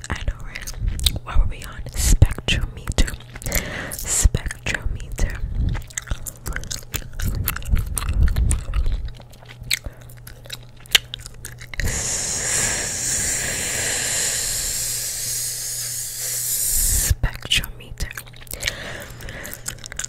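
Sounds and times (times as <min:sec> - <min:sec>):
gum chewing close up: 0:00.0 - 0:20.0
steady hiss: 0:11.8 - 0:17.2.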